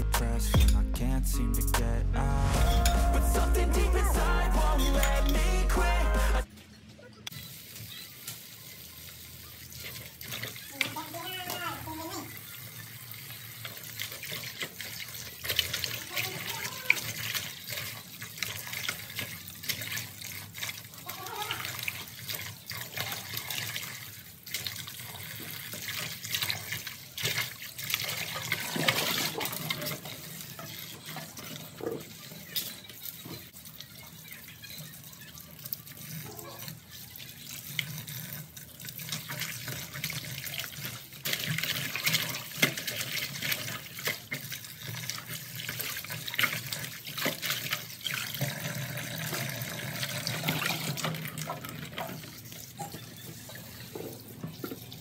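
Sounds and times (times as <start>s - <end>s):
tap water running into basin: 7.3s - 55.0s.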